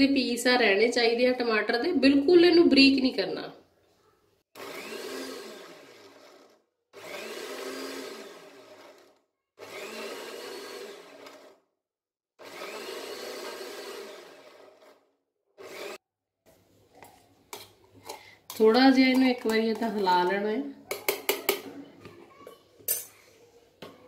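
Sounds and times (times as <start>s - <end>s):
mixer grinder motor whine: 4.6s - 11.7s, 12.4s - 16.0s.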